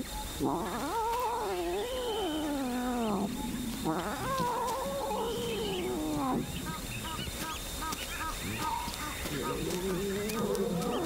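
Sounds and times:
lion cub mewing cries: 0.4s - 7.3s.

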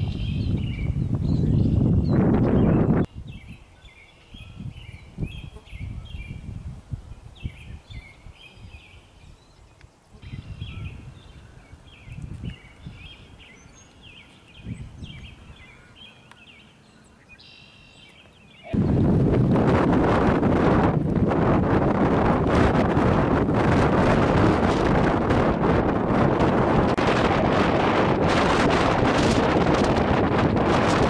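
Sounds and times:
wind gusting on microphone: 0.0s - 16.1s, 18.6s - 31.0s
songbirds chirping: 0.0s - 19.0s.

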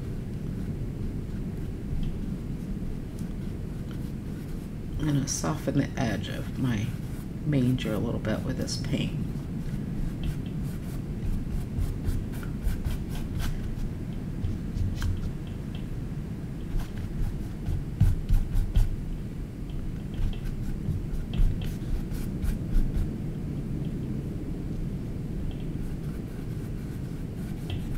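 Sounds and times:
steady low rumble: 0.0s - 27.9s
paintbrush strokes on canvas: 3.2s - 15.4s, 16.6s - 19.0s, 20.1s - 23.1s, 25.7s - 27.9s.

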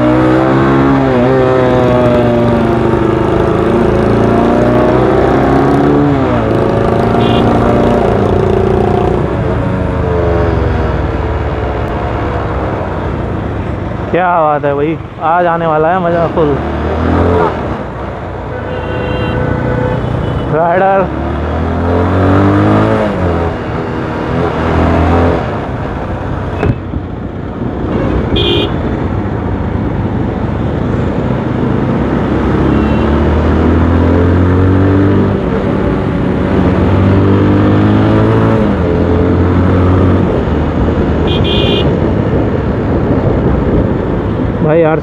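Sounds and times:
vehicle horn toots: 7.1s - 7.6s, 18.5s - 20.5s, 27.9s - 28.8s, 41.2s - 42.0s.

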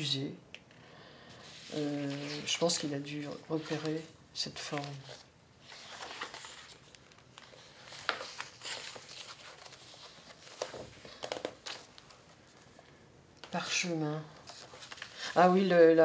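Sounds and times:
pages crackling: 1.4s - 12.8s, 13.4s - 16.0s
book pages rustling: 1.4s - 15.9s.

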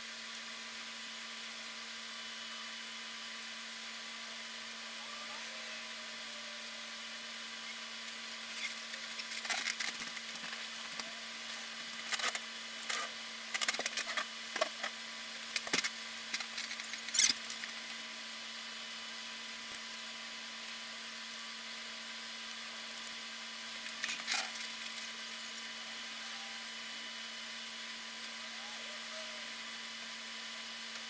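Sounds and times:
low electrical hum: 0.0s - 31.0s
sharp clicks and crackles: 8.0s - 18.0s, 23.0s - 25.2s.

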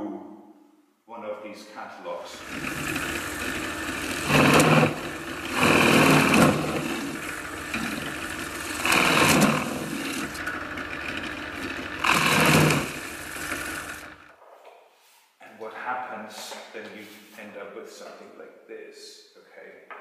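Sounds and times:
drill press motor hum: 2.3s - 14.3s
drill bit boring through paper: 2.4s - 14.3s.

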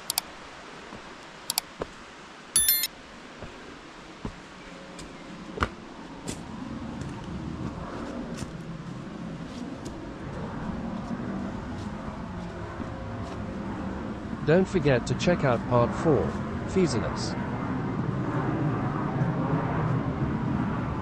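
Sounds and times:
mouse clicks: 0.0s - 0.3s, 2.6s - 2.9s
short bell-like chime: 2.6s - 2.9s.

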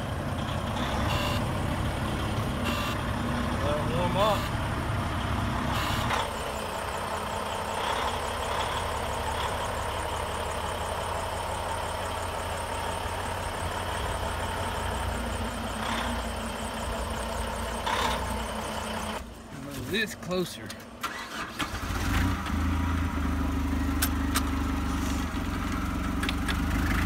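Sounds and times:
diesel engine idling: 0.0s - 27.0s.

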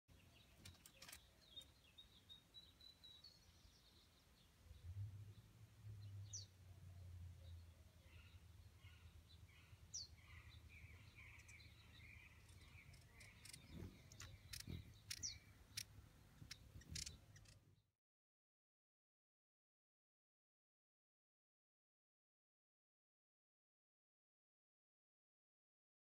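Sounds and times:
faint outdoor ambience: 0.1s - 17.9s
high bird chirps: 8.1s - 17.8s
sharp clicks: 12.9s - 17.6s.

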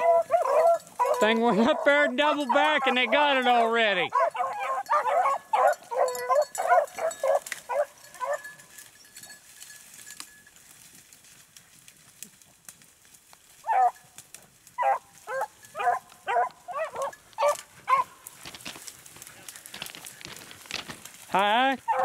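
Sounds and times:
dogs baying: 0.0s - 9.0s, 13.6s - 18.4s, 21.8s - 22.0s.

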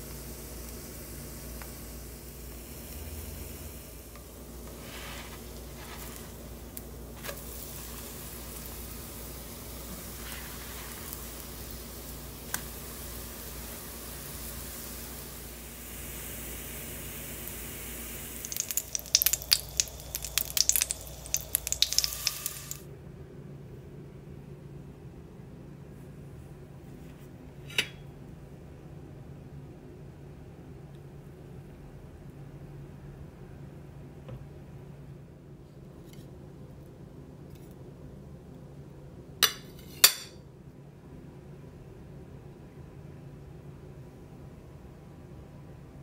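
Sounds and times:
oil sizzling in frying pan: 0.0s - 22.8s
oil crackling and spitting: 18.4s - 22.8s.

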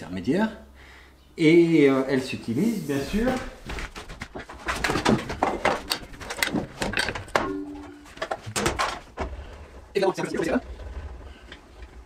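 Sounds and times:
metal and wood knocks: 4.2s - 9.3s.

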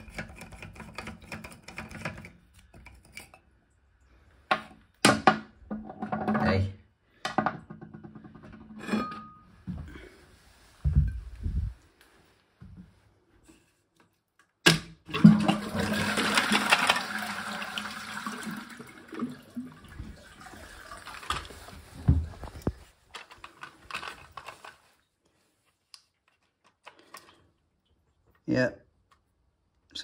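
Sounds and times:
toilet water rushing: 15.1s - 22.1s.

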